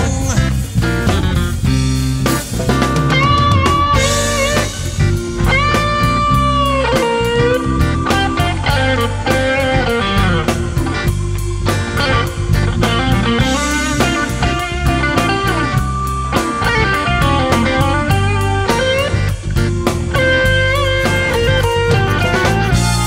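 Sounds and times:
bass: 0:00.0 - 0:23.0
electric guitar with bent notes: 0:00.0 - 0:23.0
steady drum beat: 0:00.0 - 0:23.0.

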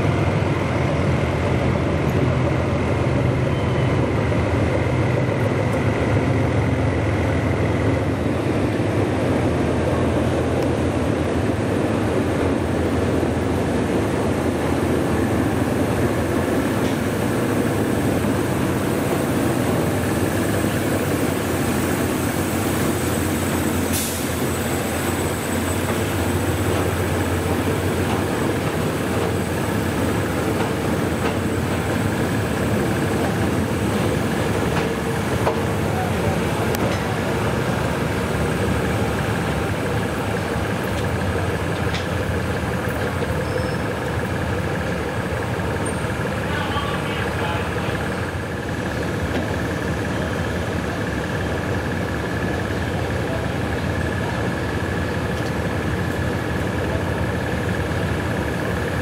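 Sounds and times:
locomotive engine drone: 0:00.0 - 0:59.0
wheel and coach noise: 0:25.1 - 0:59.0.

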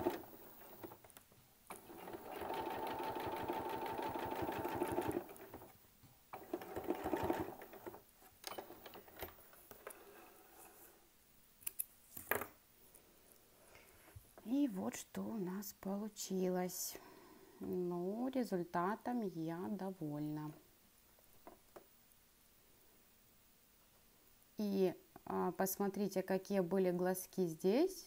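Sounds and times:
sewing machine stitching: 0:01.7 - 0:05.7, 0:06.3 - 0:09.0.

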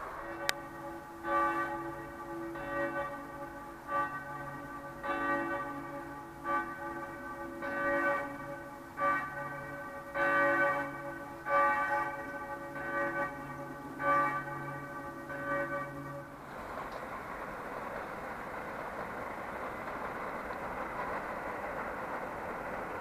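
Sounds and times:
church bells ringing: 0:00.0 - 0:16.5.

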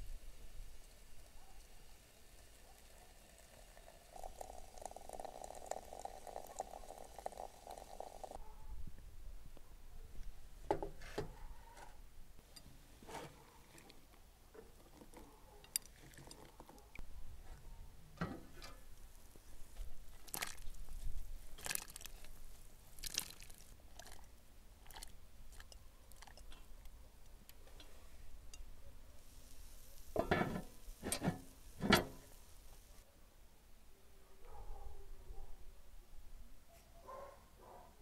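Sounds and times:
cast-iron pot and lid clinking: 0:18.2 - 0:18.9, 0:30.0 - 0:32.4.

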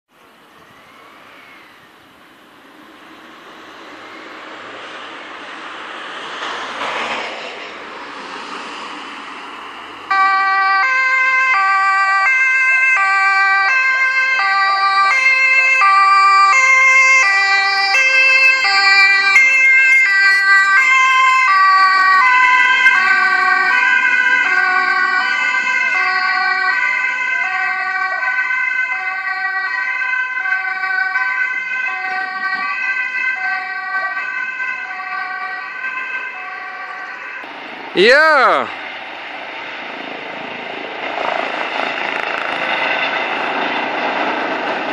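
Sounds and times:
rushing noise: 0:00.3 - 0:10.1, 0:37.1 - 0:44.9
ambulance two-tone siren: 0:10.0 - 0:38.9.

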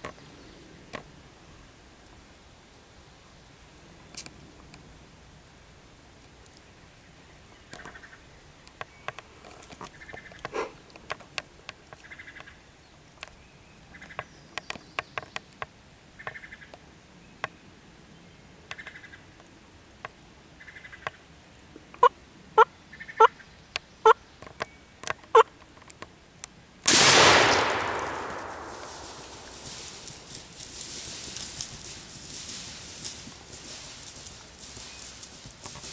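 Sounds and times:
shotgun blast: 0:26.9 - 0:30.0
footsteps in dry leaves: 0:27.8 - 0:35.9.

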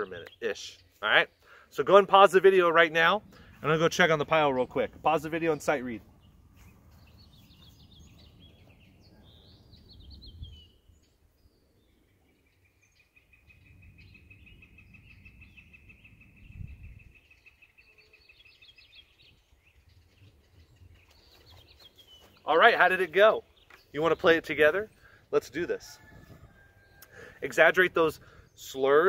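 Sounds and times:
bird chirps: 0:03.2 - 0:29.0
bird trill: 0:04.4 - 0:25.4
wind rumble on microphone: 0:06.1 - 0:11.6, 0:13.5 - 0:17.8, 0:26.0 - 0:27.0.

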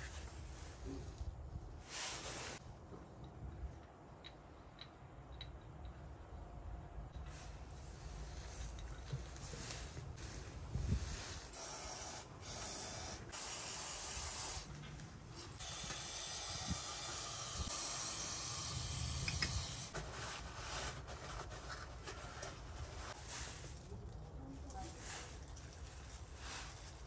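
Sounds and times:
aerosol spray hissing: 0:11.5 - 0:14.7.

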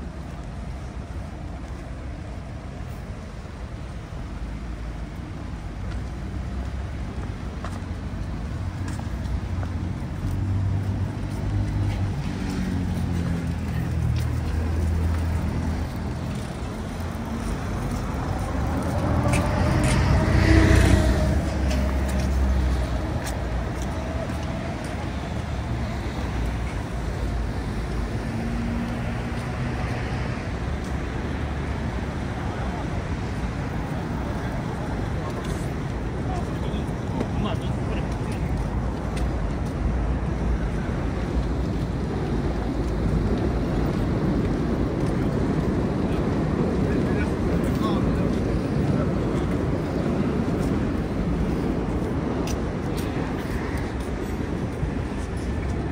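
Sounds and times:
traffic rumble: 0:00.0 - 0:55.9
vehicle passing close: 0:10.4 - 0:25.8.

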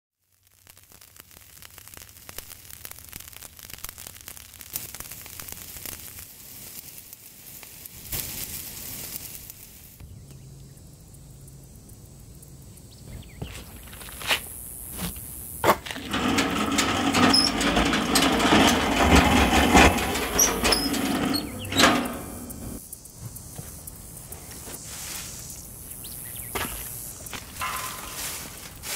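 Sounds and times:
wood embers crackling and popping: 0:00.2 - 0:10.0
grill crank grinding and squealing: 0:15.6 - 0:22.8, 0:27.6 - 0:28.2.

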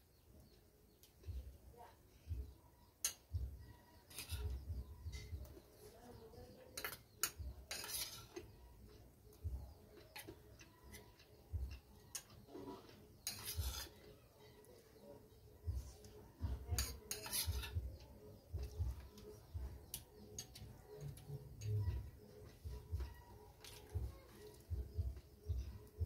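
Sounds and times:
soft low thumps: 0:03.3 - 0:03.6, 0:24.0 - 0:25.8.

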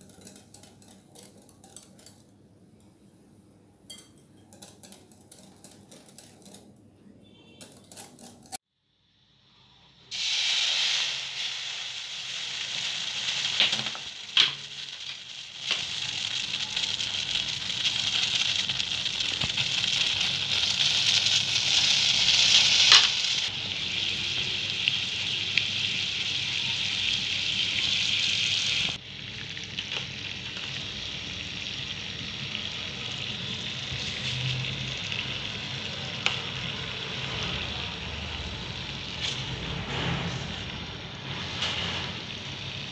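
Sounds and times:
whisk clinking in glass bowl: 0:03.9 - 0:06.6
syrup sizzling and bubbling in pan: 0:10.1 - 0:42.9.

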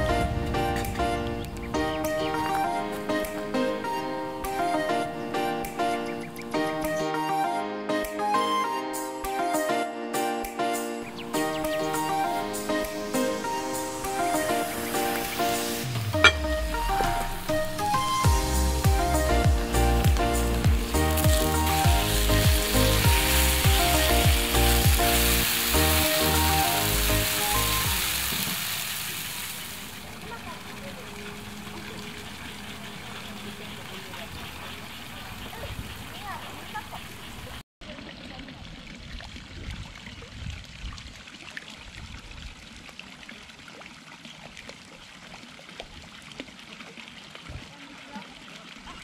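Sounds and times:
background music with steady beat: 0:00.0 - 0:28.1
pool water lapping: 0:11.0 - 0:49.0
food sizzling in a skillet: 0:12.5 - 0:30.6
water trickling from spout: 0:14.0 - 0:35.4, 0:37.8 - 0:49.0.

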